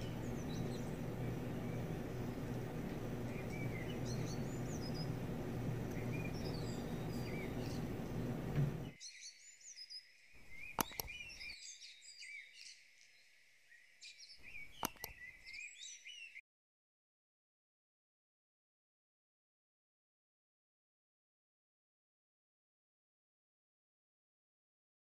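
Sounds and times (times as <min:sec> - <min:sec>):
sharp clicks: 0:00.0 - 0:08.9, 0:10.6 - 0:11.5, 0:14.6 - 0:15.3
low outdoor rumble: 0:00.0 - 0:09.0
birds chirping and twittering: 0:00.0 - 0:16.4.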